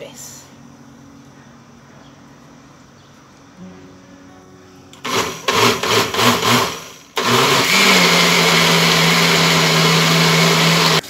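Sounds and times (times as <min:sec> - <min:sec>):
blender motor running: 0:05.0 - 0:11.0.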